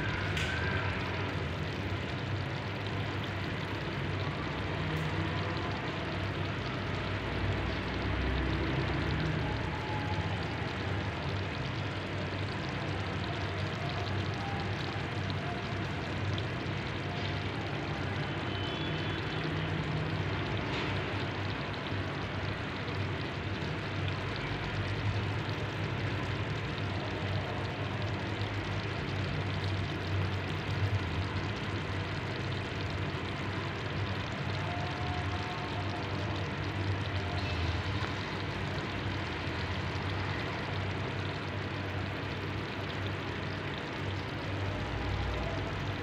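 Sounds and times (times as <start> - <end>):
food sizzling in a pot: 28.1 - 46.0.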